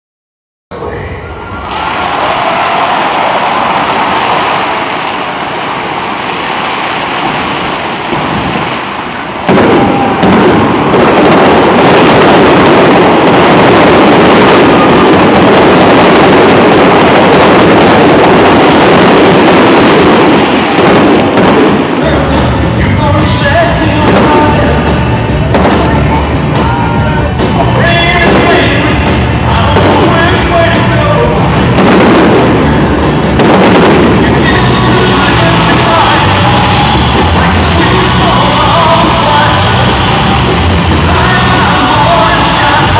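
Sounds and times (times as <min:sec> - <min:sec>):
fountain fireworks rushing: 0:00.8 - 0:42.9
aerial shells bursting and crackling: 0:03.7 - 0:22.1.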